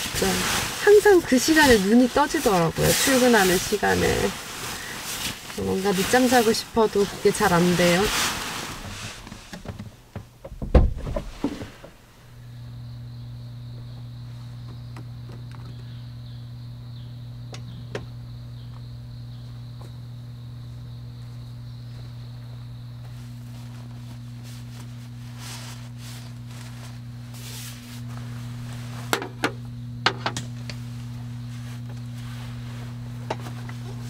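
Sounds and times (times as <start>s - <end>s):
insect trill: 0.0s - 8.1s, 12.4s - 33.4s
tent fabric rustling: 0.0s - 9.7s, 21.8s - 29.2s, 30.8s - 34.0s
low hum: 11.8s - 34.0s.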